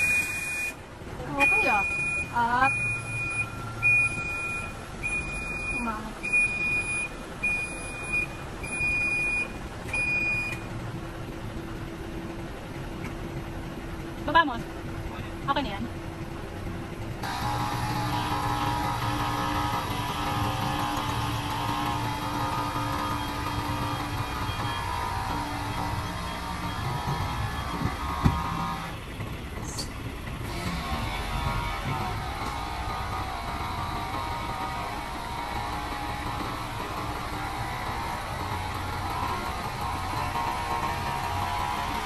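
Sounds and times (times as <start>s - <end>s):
truck warning beeper: 0.0s - 10.7s, 17.4s - 29.0s
diesel engine running: 0.0s - 42.0s.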